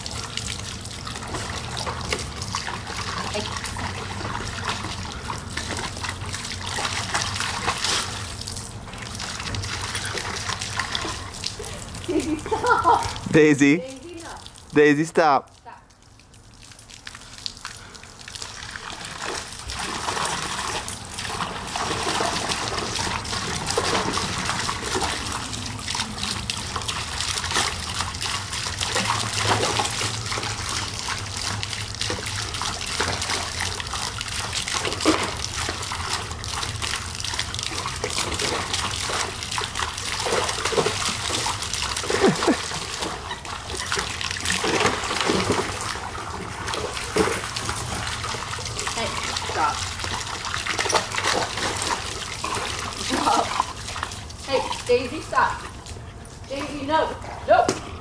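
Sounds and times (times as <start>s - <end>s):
dog splashing in water: 0.0s - 13.3s, 16.2s - 58.0s
garden hose spraying: 38.3s - 44.2s.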